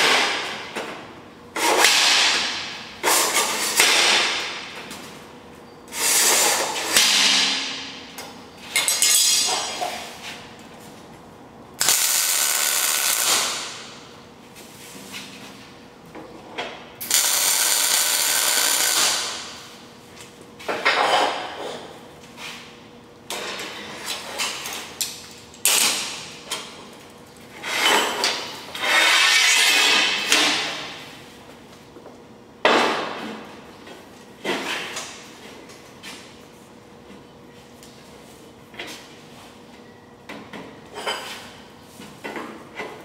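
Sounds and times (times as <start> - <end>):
welding arc buzzing: 11.8 - 14.2, 17.0 - 19.9.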